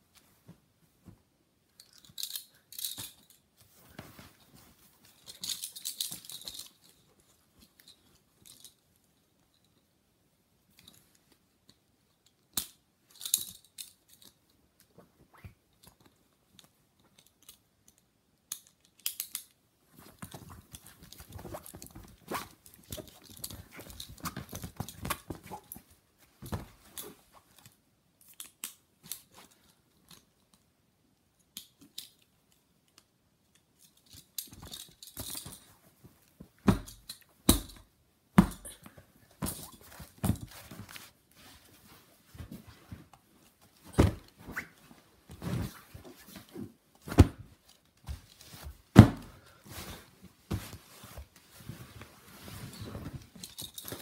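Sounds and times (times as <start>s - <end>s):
handcuffs clicking and ratcheting: 1.8s - 3.4s, 17.2s - 19.6s
plush fabric rustling: 38.4s - 54.0s.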